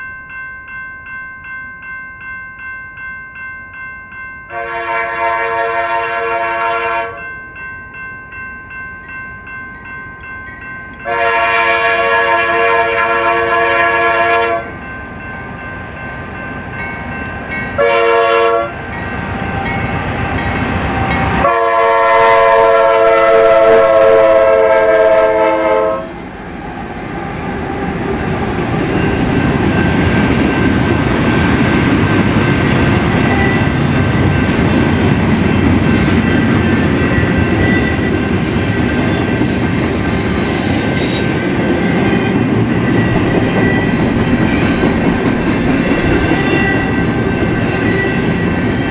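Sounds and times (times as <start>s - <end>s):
locomotive air horn: 4.5s - 7.2s, 11.1s - 14.7s, 17.8s - 18.8s, 21.4s - 26.2s
train rumbling past: 10.6s - 48.9s.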